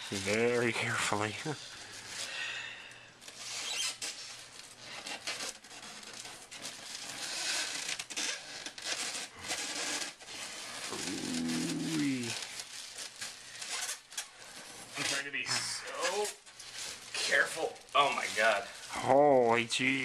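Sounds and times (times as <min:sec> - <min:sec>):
plastic scraping on foam: 0:00.0 - 0:02.3, 0:03.2 - 0:19.0
plastic wrapping crinkling: 0:00.0 - 0:20.0.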